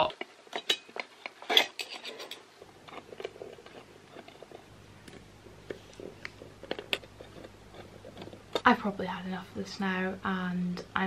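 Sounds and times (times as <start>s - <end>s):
screwdriver metal clicks and scrapes: 0.6s - 4.6s.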